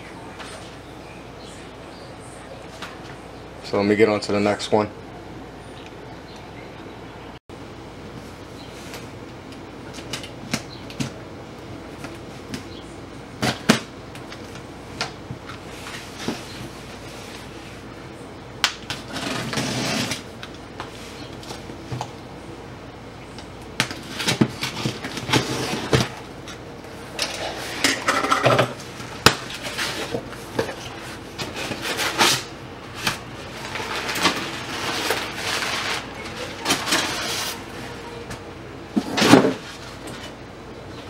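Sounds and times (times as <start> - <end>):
cardboard scraping and rustling: 18.9 - 20.3, 23.9 - 26.2, 27.2 - 38.3.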